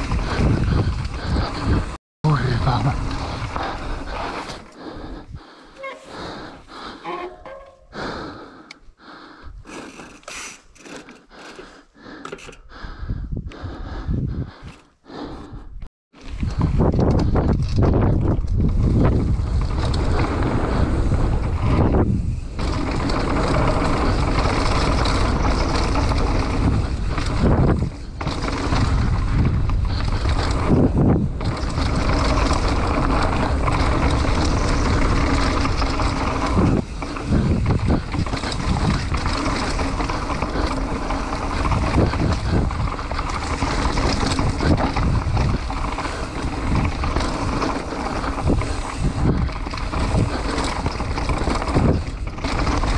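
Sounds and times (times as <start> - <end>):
wind rushing over microphone: 0.0 - 4.1, 12.8 - 14.6, 15.6 - 52.9
mountain bike rumble and rattle: 0.0 - 52.9.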